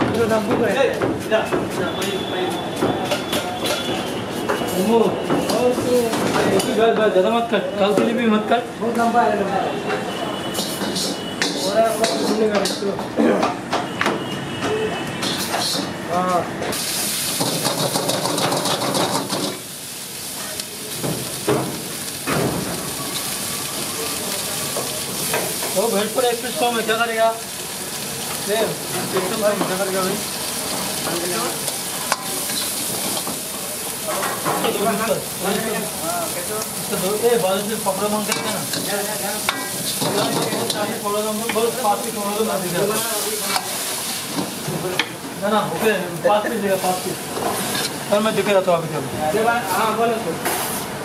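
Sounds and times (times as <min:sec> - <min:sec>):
food sizzling in a pan: 0:10.1 - 0:12.9, 0:16.7 - 0:51.0.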